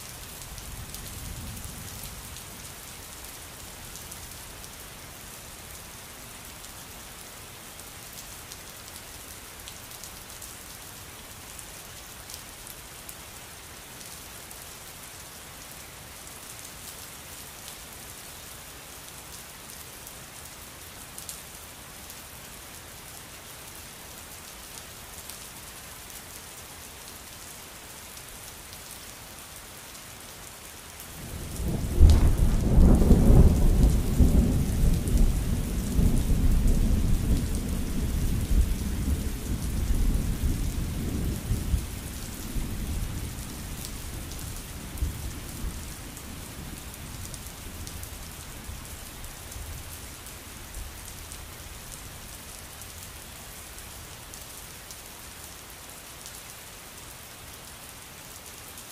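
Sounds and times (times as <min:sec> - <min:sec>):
steady rain falling: 0:00.0 - 0:58.9
deep rumble of thunder: 0:31.4 - 0:41.9.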